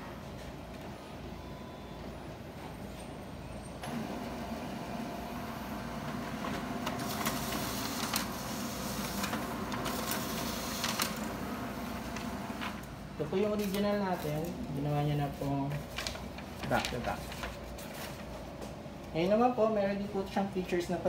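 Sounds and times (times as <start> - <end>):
copier machine hum: 0.0 - 21.0
paper feed clicks: 5.9 - 14.6, 15.6 - 18.2.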